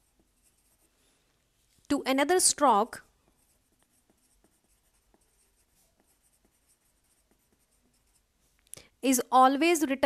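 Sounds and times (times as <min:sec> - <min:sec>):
pencil scratching on paper: 0:00.0 - 0:01.7, 0:02.9 - 0:08.6.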